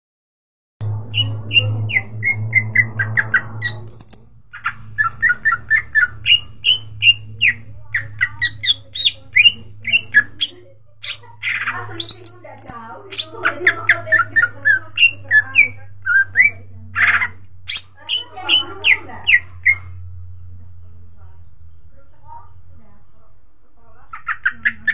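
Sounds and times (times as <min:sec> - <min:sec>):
steady low hum: 0:00.8 - 0:24.8
bird singing whistled notes: 0:01.1 - 0:04.3, 0:05.0 - 0:13.3.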